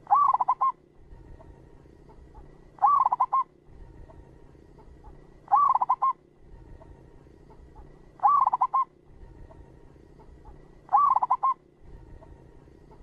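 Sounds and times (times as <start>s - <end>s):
dove cooing: 0.0s - 1.5s, 2.3s - 3.9s, 5.0s - 6.6s, 7.7s - 9.0s, 10.8s - 11.7s.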